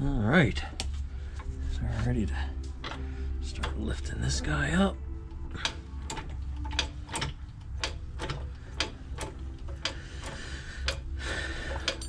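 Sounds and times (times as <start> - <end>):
low hum: 0.0 - 12.0
lifting jack clicks: 5.6 - 11.1.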